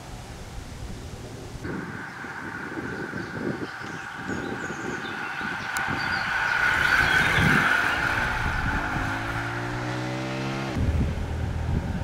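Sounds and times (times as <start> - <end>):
vehicle passing: 1.6 - 11.6
engine accelerating: 4.2 - 11.6.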